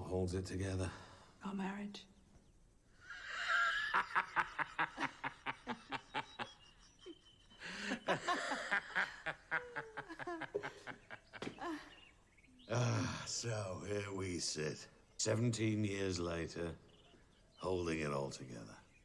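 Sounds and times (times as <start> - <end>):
people laughing rhythmically: 3.1 - 11.8.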